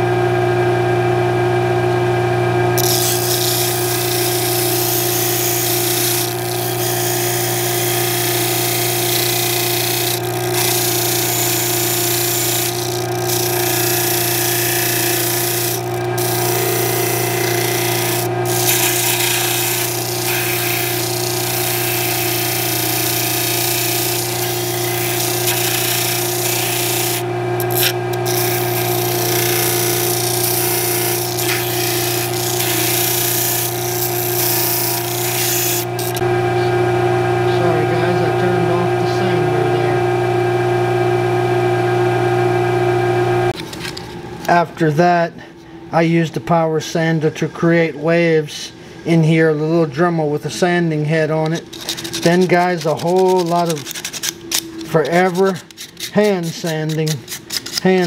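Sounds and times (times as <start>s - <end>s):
disc sander motor hum: 2.0s - 43.6s
disc sanding wood hiss: 2.8s - 36.2s.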